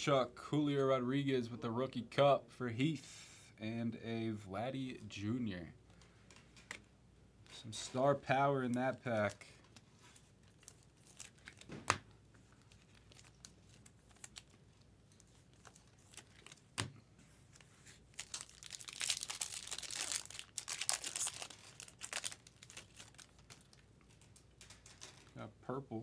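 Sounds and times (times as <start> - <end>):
foil wrapper tearing and crinkling: 9.1 - 12.0, 12.6 - 16.7, 18.0 - 25.4.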